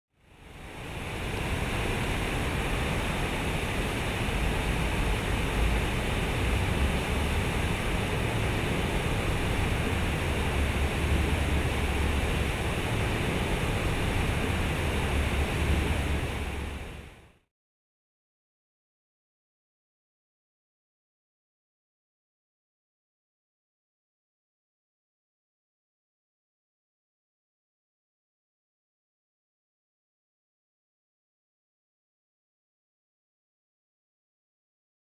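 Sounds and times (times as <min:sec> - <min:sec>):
fountain water splashing into pool: 0:00.7 - 0:16.7.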